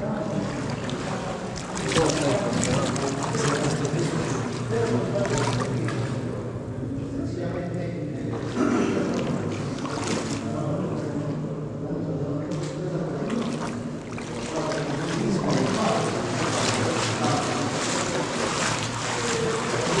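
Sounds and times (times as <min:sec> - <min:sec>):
rubber boots splashing: 0:00.0 - 0:06.4, 0:08.3 - 0:10.8, 0:12.5 - 0:20.0
water running in tunnel: 0:00.0 - 0:06.4, 0:08.4 - 0:11.1, 0:13.3 - 0:20.0.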